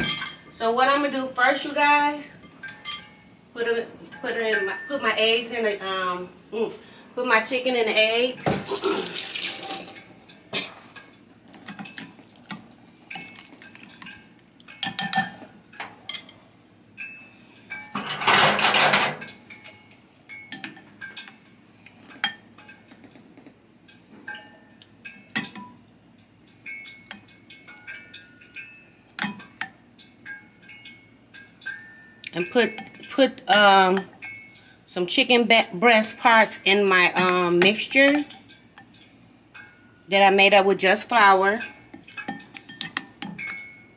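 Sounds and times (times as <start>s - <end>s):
utensil clinking on glass bowl: 0.0s - 0.7s, 2.4s - 3.3s, 9.7s - 21.4s, 24.3s - 25.9s, 26.6s - 35.3s, 41.1s - 43.9s.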